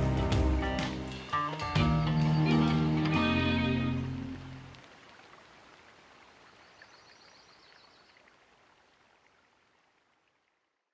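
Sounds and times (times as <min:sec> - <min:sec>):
guitar music: 0:00.0 - 0:04.7
faint outdoor hiss: 0:00.0 - 0:10.9.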